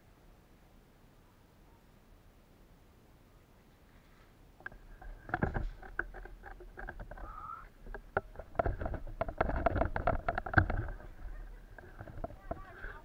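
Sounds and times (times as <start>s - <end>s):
rustling through grass and brush: 3.7s - 7.3s
gear clicks and knocks: 4.6s - 13.0s.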